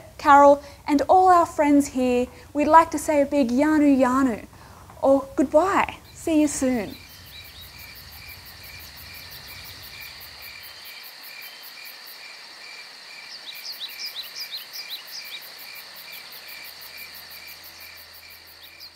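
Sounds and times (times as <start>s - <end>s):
crickets pulsing chirp: 5.8s - 18.9s
insects trilling: 5.8s - 18.9s.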